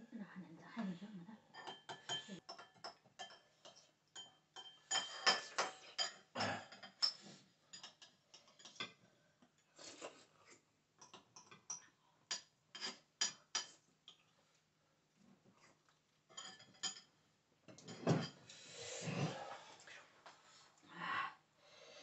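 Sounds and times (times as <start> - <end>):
metal spoon clinking on ceramic: 1.5 - 8.9, 11.0 - 14.2, 16.4 - 17.1.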